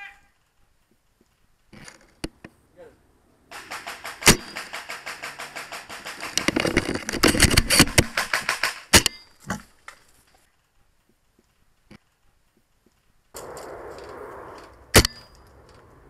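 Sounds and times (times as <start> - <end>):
airsoft gun full-auto bursts: 3.5 - 6.8, 7.6 - 9.1
airsoft gun single cracks: 13.4 - 15.5.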